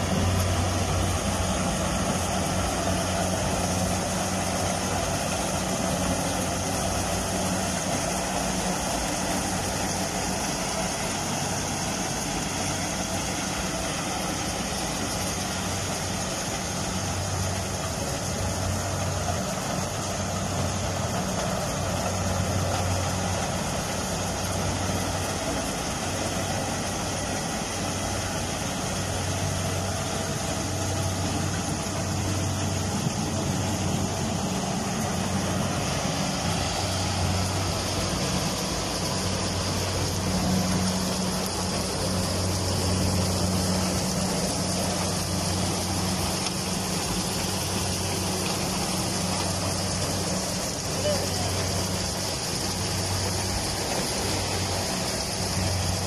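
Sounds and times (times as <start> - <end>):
combine harvester engine droning: 0.0 - 56.0.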